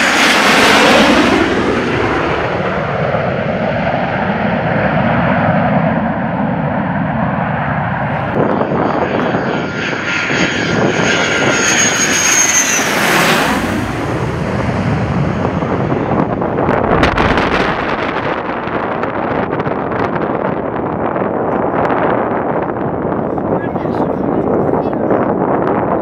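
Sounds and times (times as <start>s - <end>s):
jet engines roaring: 0.0s - 26.0s
high turbine whine: 10.7s - 21.3s.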